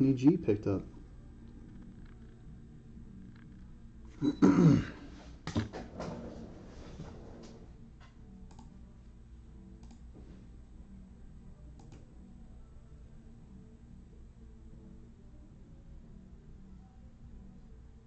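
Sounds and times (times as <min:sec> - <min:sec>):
man clearing his throat: 0:04.2 - 0:05.0.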